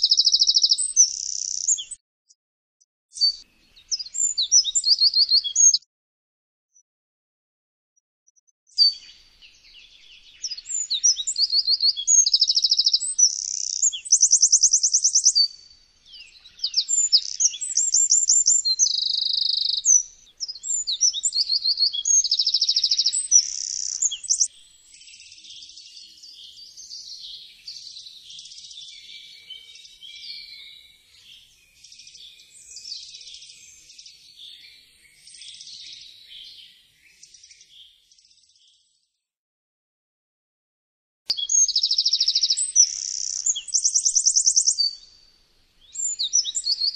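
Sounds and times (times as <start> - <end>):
wren singing trills: 0.0 - 2.0, 3.1 - 5.8, 8.7 - 38.8, 41.3 - 45.2, 45.8 - 46.9.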